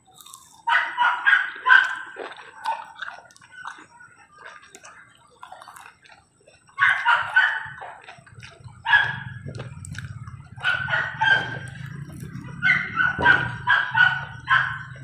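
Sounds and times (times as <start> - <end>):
animal chewing: 1.6 - 12.7.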